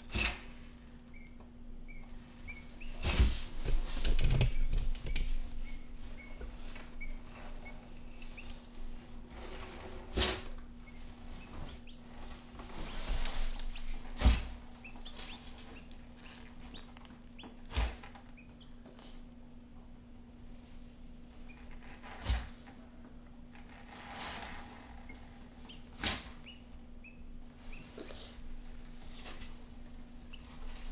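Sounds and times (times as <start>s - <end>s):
chicks peeping: 14.8s - 17.7s, 25.1s - 28.4s.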